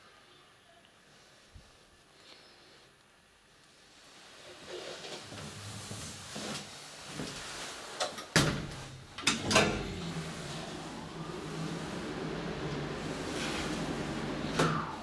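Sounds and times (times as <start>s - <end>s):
elevator doors clunking shut: 8.3s - 15.0s.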